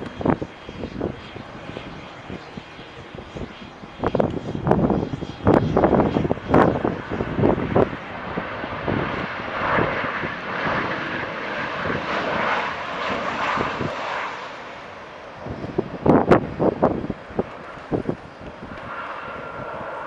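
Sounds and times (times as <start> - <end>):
jet airliner landing: 0.0 - 20.0
wind buffeting microphone: 0.0 - 20.0.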